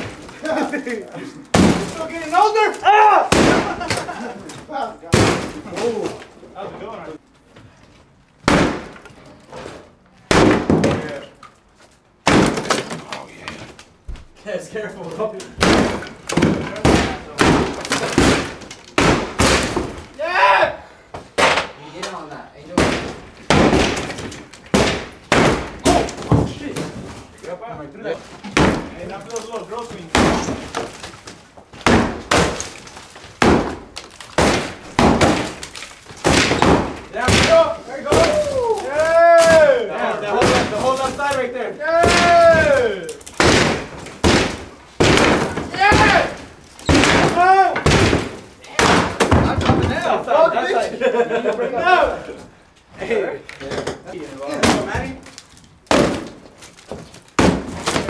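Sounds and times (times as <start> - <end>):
sledgehammer striking wall: 1.5 - 2.4, 5.0 - 6.0, 8.4 - 9.1, 10.3 - 11.3, 12.2 - 13.1, 15.6 - 20.1, 22.7 - 27.2, 28.4 - 29.2, 29.8 - 31.1, 31.7 - 50.2, 55.9 - 58.0
material cracking and breaking: 15.1 - 20.2, 28.4 - 50.1, 53.6 - 58.0.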